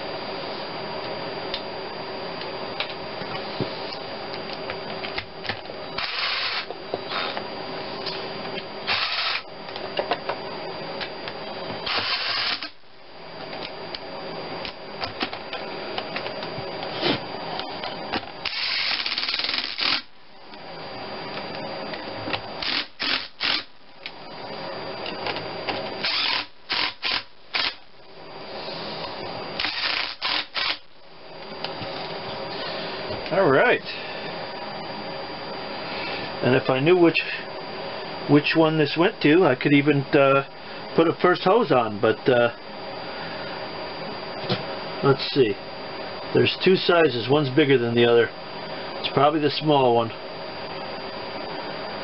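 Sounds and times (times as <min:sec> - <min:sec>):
cordless drill bursts: 0:06.0 - 0:06.7, 0:08.8 - 0:09.5, 0:11.8 - 0:12.8, 0:18.4 - 0:20.1, 0:22.6 - 0:23.7, 0:26.0 - 0:27.8, 0:29.6 - 0:30.9.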